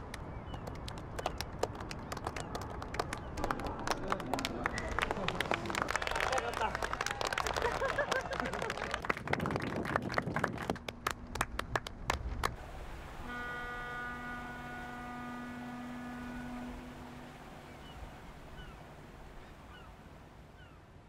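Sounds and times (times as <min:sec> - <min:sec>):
handclaps: 0:00.1 - 0:12.6
ship's horn blast: 0:13.0 - 0:19.6.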